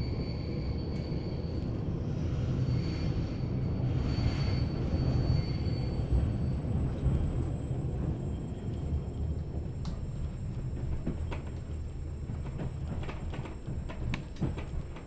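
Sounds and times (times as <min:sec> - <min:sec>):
train coach rumbling on track: 0:00.0 - 0:15.0.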